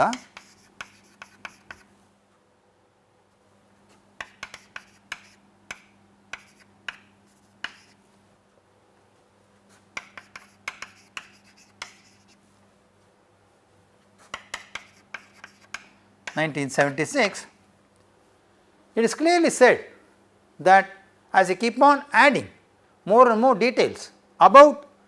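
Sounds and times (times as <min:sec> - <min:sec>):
chalk tapping and scratching: 0:00.0 - 0:01.9, 0:03.9 - 0:08.0, 0:09.7 - 0:12.5, 0:14.2 - 0:16.9.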